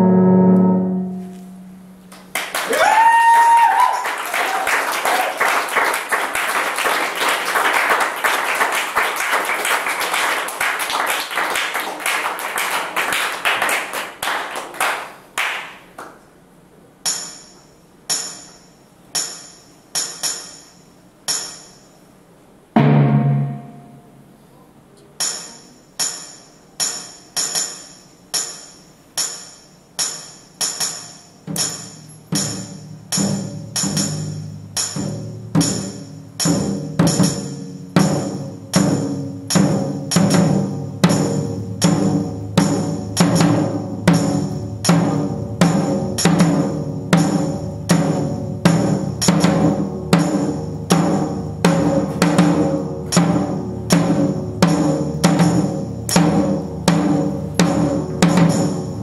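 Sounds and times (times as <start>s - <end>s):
held synth chord: 0.0s - 2.0s
low synth note: 0.0s - 2.1s, 23.1s - 24.6s
looped tambourine-like hit: 17.0s - 24.3s, 25.2s - 59.0s.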